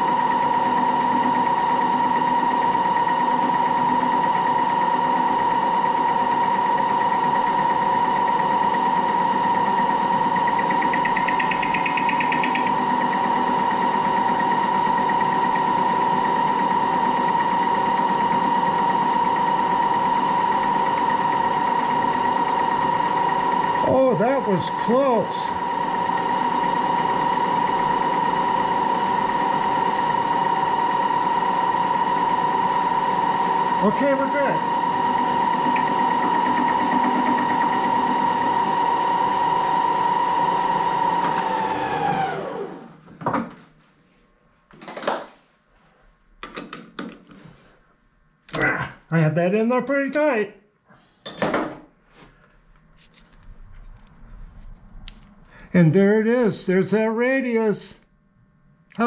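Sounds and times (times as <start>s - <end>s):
machine spindle whining: 0.0s - 43.0s.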